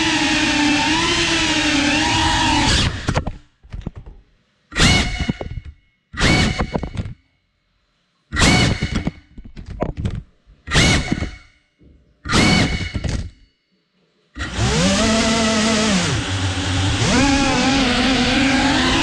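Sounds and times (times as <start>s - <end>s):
drone motors whirring: 0.0s - 3.2s, 14.4s - 19.0s.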